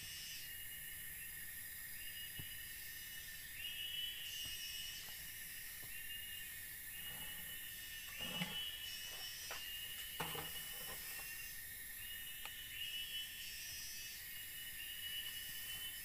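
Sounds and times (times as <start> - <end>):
insect chorus: 0.0 - 16.0
shrill rising insect call: 0.0 - 16.0
bamboo poles knocking: 10.2 - 11.0.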